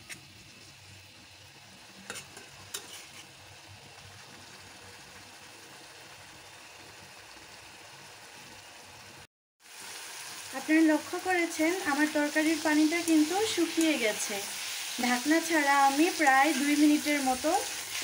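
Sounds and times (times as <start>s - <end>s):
food sizzling in a pan: 0.0s - 18.0s
metal spatula scraping pan: 2.0s - 3.4s.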